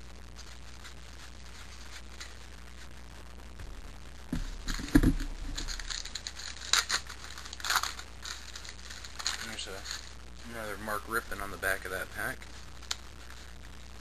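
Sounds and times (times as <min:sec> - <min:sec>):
wrapper crinkling and ripping: 0:04.4 - 0:13.6.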